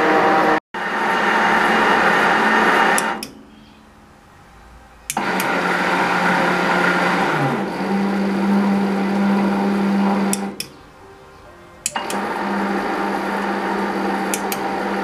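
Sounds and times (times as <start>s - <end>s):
metal lathe running: 0.0s - 3.9s, 5.1s - 10.7s, 11.8s - 15.0s
stop button click: 11.8s - 12.4s.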